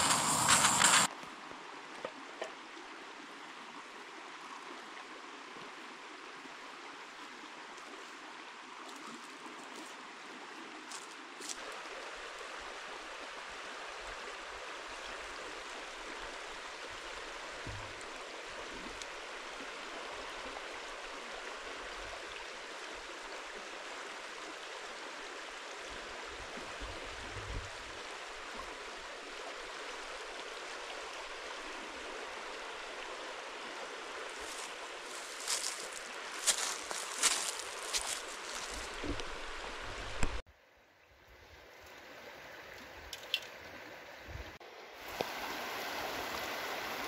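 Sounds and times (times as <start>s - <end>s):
creek babbling over stones: 0.0s - 40.5s, 41.3s - 47.0s.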